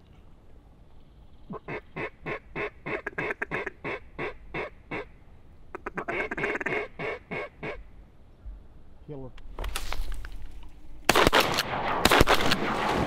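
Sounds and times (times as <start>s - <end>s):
duck quacking: 1.5s - 5.1s, 5.7s - 7.8s.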